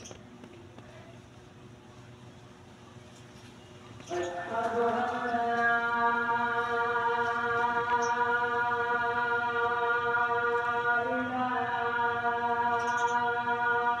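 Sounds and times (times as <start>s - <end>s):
choir-like drone: 4.0s - 14.0s.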